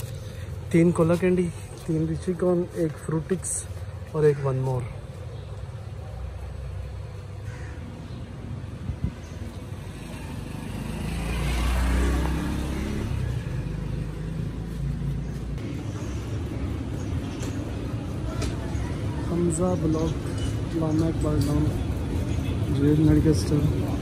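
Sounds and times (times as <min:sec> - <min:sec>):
street traffic: 0:00.0 - 0:24.0
vehicle passing close: 0:08.5 - 0:18.1.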